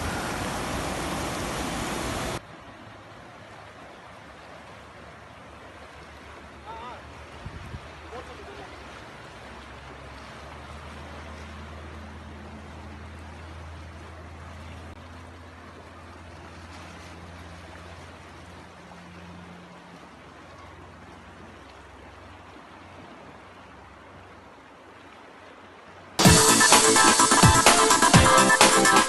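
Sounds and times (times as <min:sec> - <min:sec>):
floodwater rushing: 0:00.0 - 0:29.0
loud electronic music: 0:26.2 - 0:29.0.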